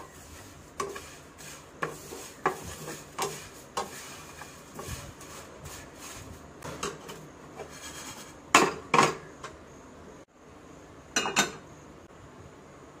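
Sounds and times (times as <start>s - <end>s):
spatula scraping noodles in pan: 0.0s - 8.5s.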